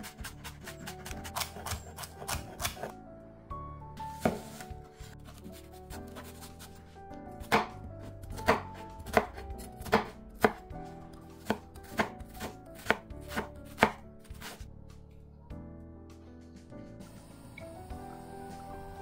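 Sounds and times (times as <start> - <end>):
knife chopping on wooden board: 0.0 - 2.9, 4.2 - 4.6, 7.4 - 10.6, 11.4 - 14.6.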